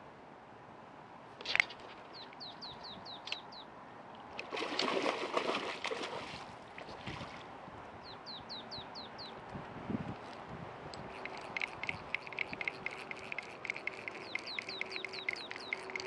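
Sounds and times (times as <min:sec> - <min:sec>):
small bird chirping: 0:02.1 - 0:03.7, 0:11.1 - 0:16.0
splash on water: 0:04.4 - 0:07.5.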